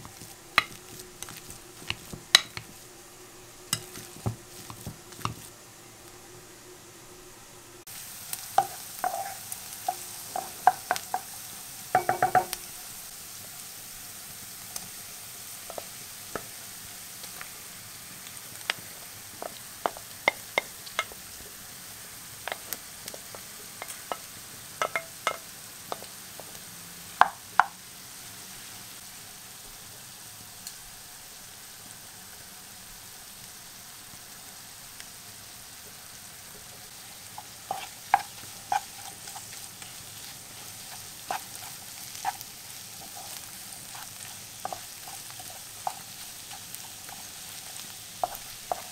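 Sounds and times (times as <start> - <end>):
onions sizzling in oil: 0.0 - 48.9
wooden spoon knocking against pan: 11.9 - 12.6, 23.3 - 26.1.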